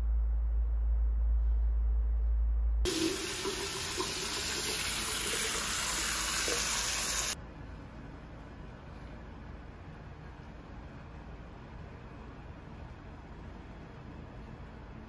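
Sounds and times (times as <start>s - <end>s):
steady low hum: 0.0s - 15.0s
tap water splashing into sink: 2.9s - 7.4s.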